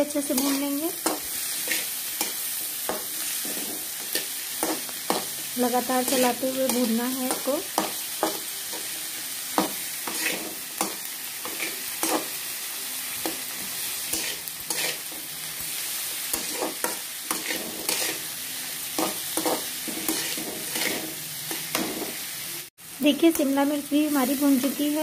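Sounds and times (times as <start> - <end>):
onions sizzling in butter: 0.0 - 25.0
metal spatula scraping pan: 0.3 - 5.3, 9.6 - 12.4, 13.6 - 15.3, 16.2 - 18.3, 18.9 - 22.2.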